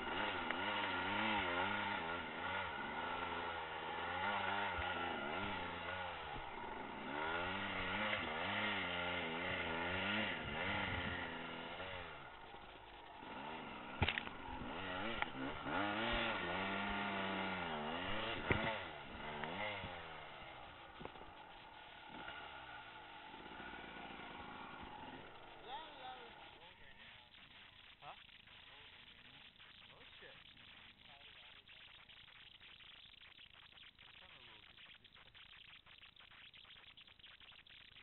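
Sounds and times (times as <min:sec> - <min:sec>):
dirt bike engine revving: 0:00.0 - 0:27.6.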